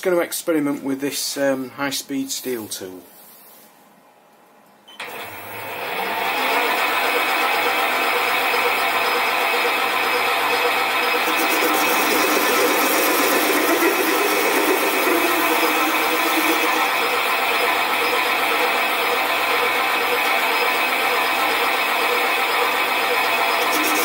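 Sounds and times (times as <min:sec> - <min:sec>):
lathe motor and gear whine: 0:05.0 - 0:24.0
lathe tool cutting metal: 0:05.1 - 0:24.0.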